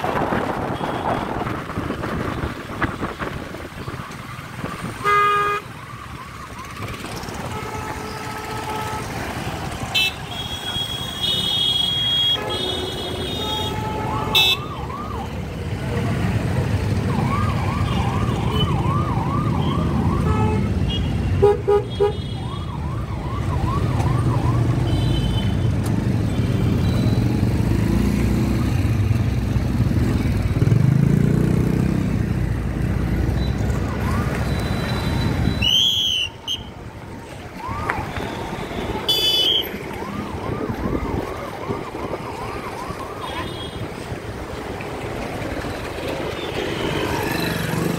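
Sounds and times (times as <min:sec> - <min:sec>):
motorcycles and cars running: 0:00.0 - 0:47.9
electronic siren horn yelping: 0:38.1 - 0:39.8.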